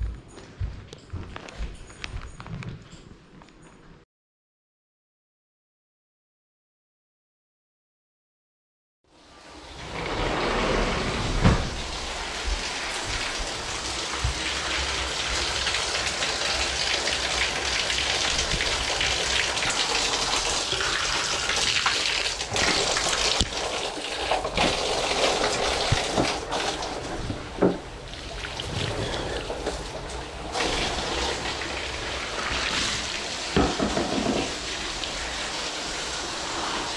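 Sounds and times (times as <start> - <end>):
water splashes or knocks: 33.5 - 34.7.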